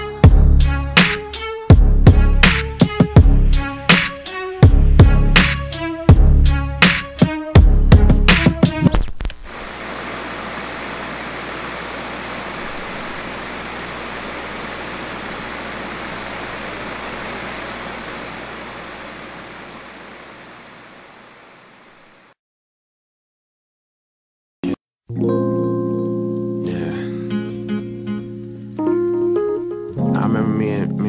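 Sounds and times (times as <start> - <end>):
hip-hop music: 0.0 - 9.1
outdoor ambience rushing: 9.4 - 22.3.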